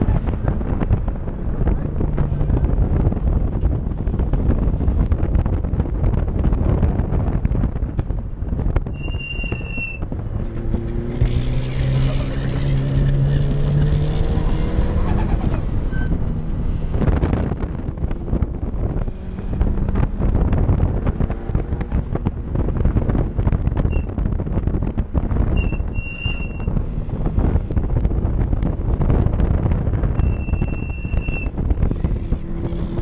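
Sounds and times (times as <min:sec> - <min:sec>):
loud car engine: 0:00.0 - 0:33.0
road noise: 0:00.0 - 0:33.0.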